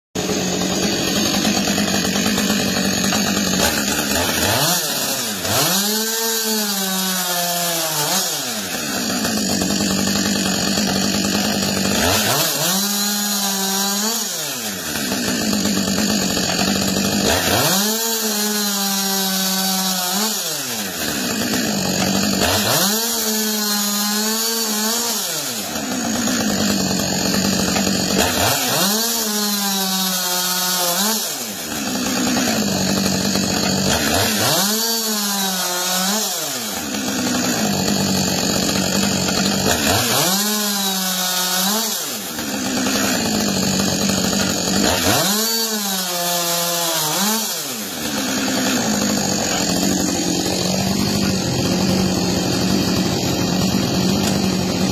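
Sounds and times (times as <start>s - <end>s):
chainsaw cutting wood: 0.2s - 54.9s.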